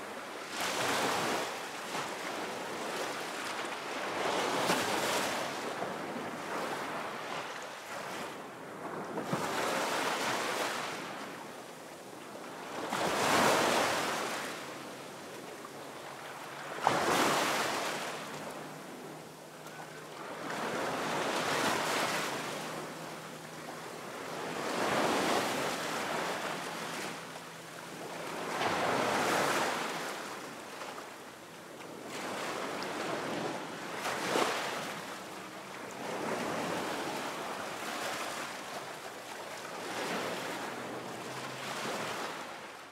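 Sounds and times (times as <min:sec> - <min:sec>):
ocean waves washing in: 0:12.1 - 0:42.9.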